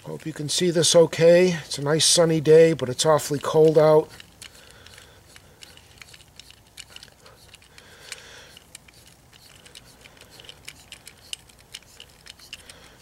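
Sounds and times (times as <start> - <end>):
metal tap clicking and scraping: 2.8 - 13.0.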